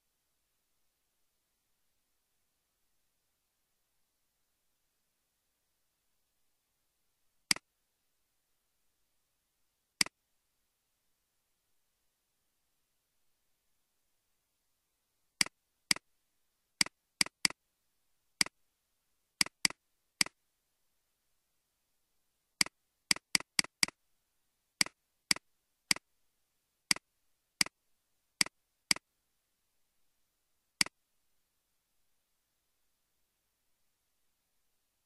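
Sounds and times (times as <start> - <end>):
computer mouse clicking: 15.4 - 16.0, 16.8 - 17.6, 19.4 - 20.4, 22.6 - 24.0, 24.8 - 26.0.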